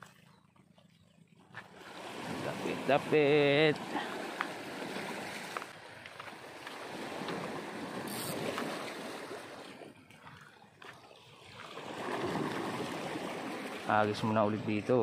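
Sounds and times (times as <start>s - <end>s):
small waves washing on rocks: 1.7s - 9.8s, 11.5s - 14.8s.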